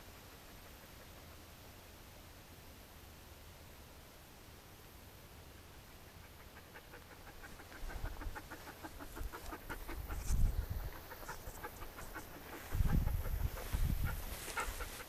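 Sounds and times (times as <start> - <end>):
animal panting rapidly: 6.0 - 15.0.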